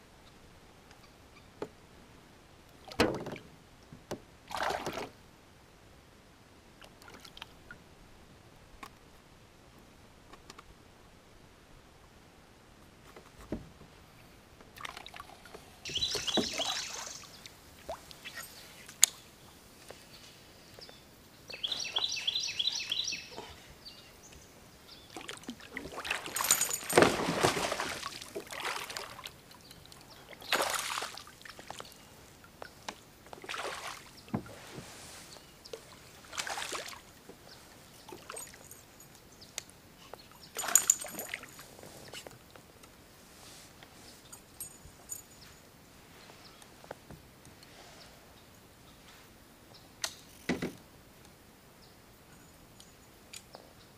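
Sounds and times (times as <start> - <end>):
water splashing and sloshing: 4.4 - 5.2, 6.8 - 7.8, 14.7 - 19.4, 25.1 - 38.8, 40.5 - 42.4.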